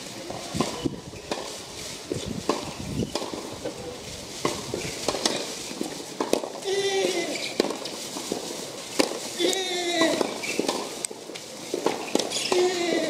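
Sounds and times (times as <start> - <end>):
tennis ball knocking: 2.4 - 3.5, 4.4 - 5.5, 6.2 - 9.3, 10.0 - 11.0, 11.8 - 12.7.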